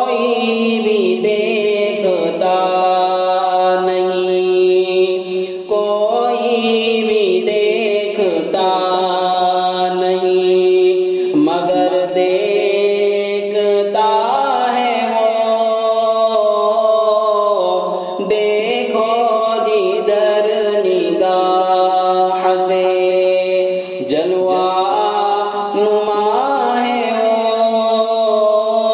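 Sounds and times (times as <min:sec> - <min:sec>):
man singing unaccompanied hymn: 0:00.0 - 0:28.9.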